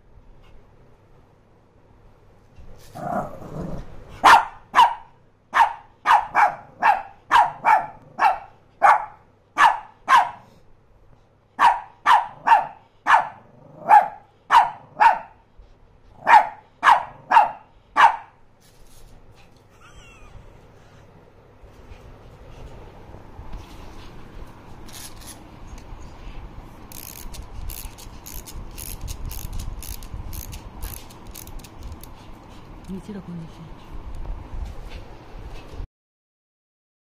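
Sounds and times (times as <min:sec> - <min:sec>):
small dog growling: 0:02.8 - 0:03.9
small dog barking sharply: 0:04.2 - 0:10.5, 0:11.6 - 0:15.4, 0:16.2 - 0:18.4.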